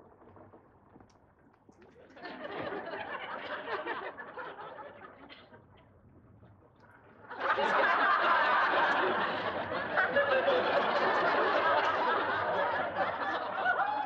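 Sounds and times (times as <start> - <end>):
studio audience laughing: 2.0 - 5.6, 7.3 - 14.0.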